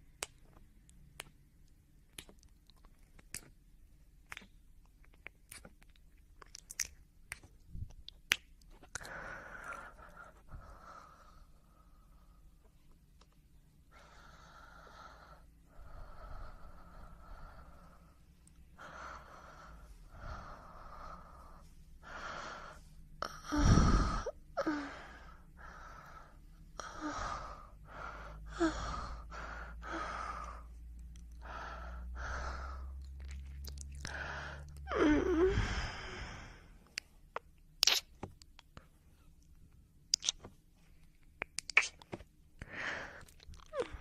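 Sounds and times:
person breathing heavily: 9.0 - 12.6, 13.9 - 33.0, 33.9 - 36.9, 42.6 - 44.0.

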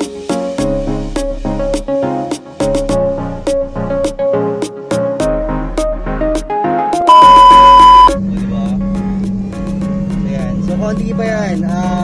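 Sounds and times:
plucked background music: 0.0 - 12.0
high test-tone beep: 7.1 - 8.2.

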